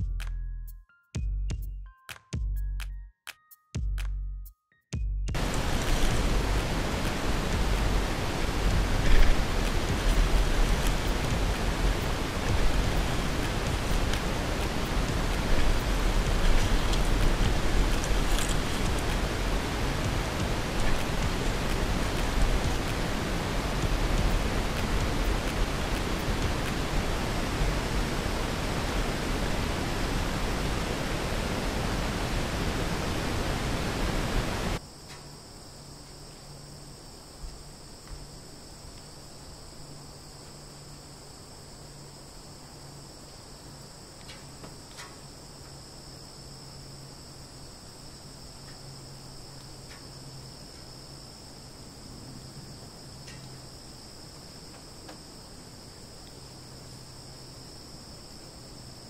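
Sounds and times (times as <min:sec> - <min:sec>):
wind rushing over microphone: 0:05.4 - 0:34.8
crickets chirring: 0:05.4 - 0:59.0
faint low hum: 0:05.4 - 0:59.0
light clicks: 0:53.2 - 0:53.6.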